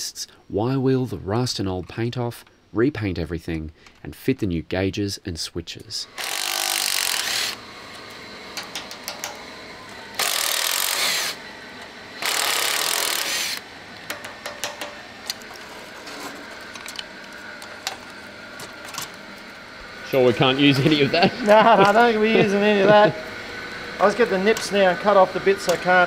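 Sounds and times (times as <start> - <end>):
impact driver running: 6.1 - 19.2.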